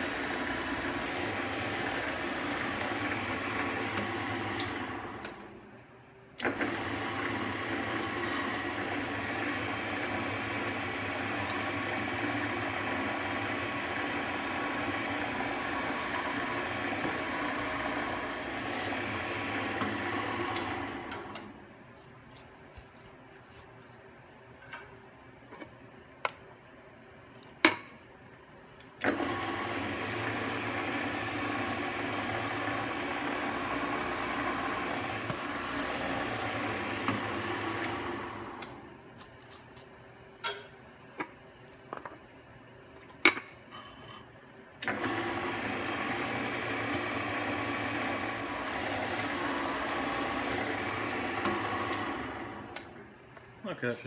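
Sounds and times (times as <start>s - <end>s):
drill press motor running: 0.0s - 5.6s, 6.4s - 21.6s, 29.0s - 38.9s, 44.8s - 53.1s.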